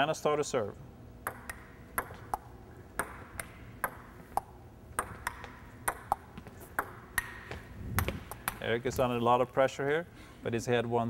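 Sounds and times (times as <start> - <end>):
table tennis ball clicking: 1.2 - 8.6.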